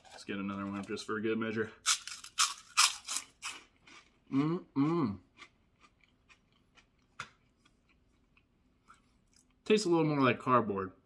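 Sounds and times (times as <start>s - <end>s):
crunching pork rind: 1.8s - 7.4s
chewing crunches: 1.9s - 8.4s
person humming mouth closed: 4.3s - 5.2s.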